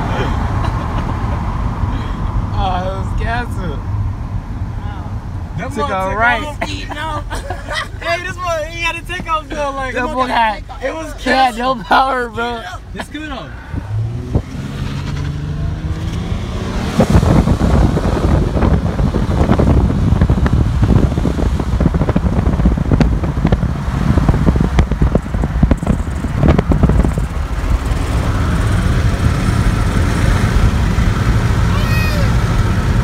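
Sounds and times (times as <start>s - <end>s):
car engine accelerating: 0.0s - 33.0s
wind buffeting through car window: 13.7s - 33.0s.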